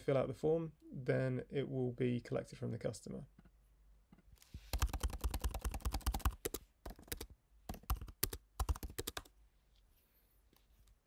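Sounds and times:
keyboard typing: 4.7 - 9.3.

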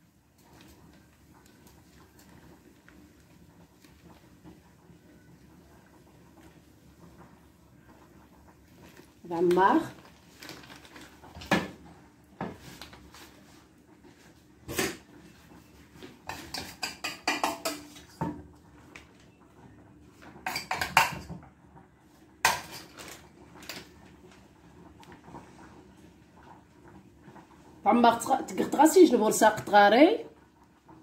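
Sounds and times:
dishes and utensils clinking: 16.3 - 18.4, 20.4 - 21.4, 22.4 - 23.2.

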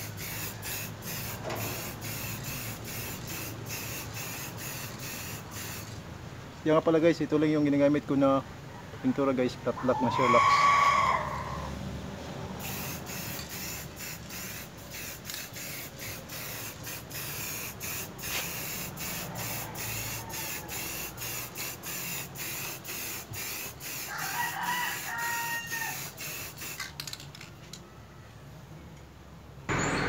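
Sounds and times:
spray can hissing in spurts: 0.0 - 6.0, 12.6 - 27.2.

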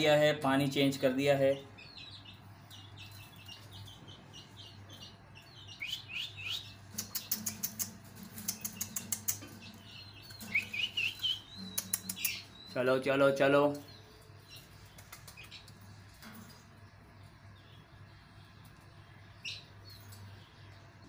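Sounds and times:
parrots chirping: 1.8 - 12.9
parrots clicky chatter: 5.8 - 12.6, 14.5 - 16.2.

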